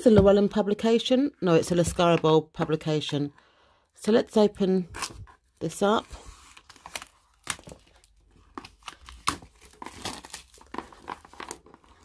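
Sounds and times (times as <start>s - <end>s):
plastic shrink-wrap crinkling: 6.4s - 12.0s.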